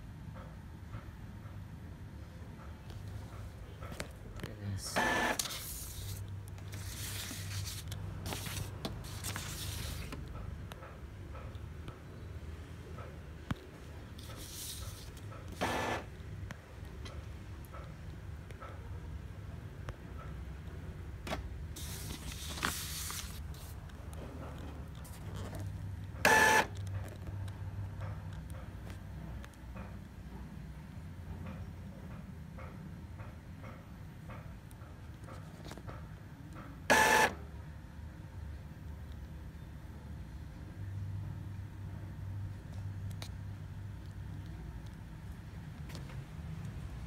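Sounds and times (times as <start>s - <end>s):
printer motors humming: 4.9s - 5.8s, 14.9s - 16.2s, 26.2s - 26.8s, 36.9s - 37.4s
printer humming: 4.9s - 10.3s, 14.1s - 16.2s, 26.1s - 26.8s, 36.8s - 37.5s
paper rustling: 5.4s - 10.2s, 14.2s - 15.3s, 21.8s - 23.8s.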